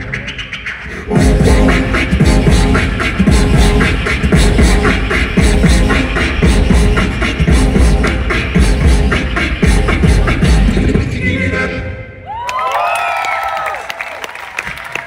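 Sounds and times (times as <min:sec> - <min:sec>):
beatbox beat: 0:00.0 - 0:11.2.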